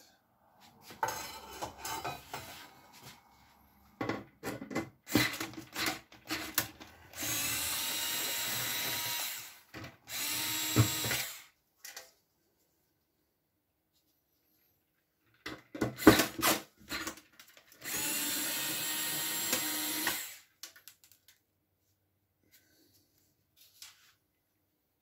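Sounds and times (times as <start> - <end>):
cordless screwdriver running: 7.1 - 11.5, 17.8 - 20.5.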